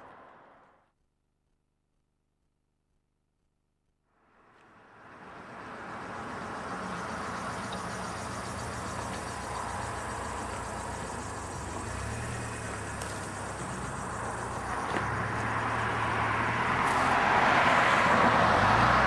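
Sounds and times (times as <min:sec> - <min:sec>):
cars driving past: 0:04.2 - 0:19.0.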